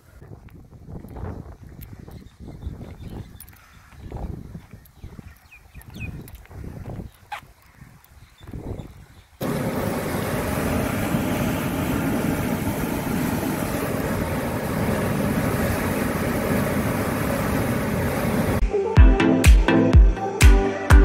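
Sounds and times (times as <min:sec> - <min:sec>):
water rushing through channel: 0:09.4 - 0:18.6.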